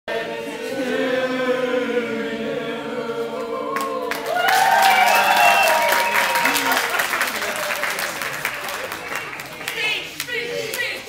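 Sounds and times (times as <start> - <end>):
group singing unaccompanied: 0.1 - 4.4
people clapping: 3.7 - 11.0.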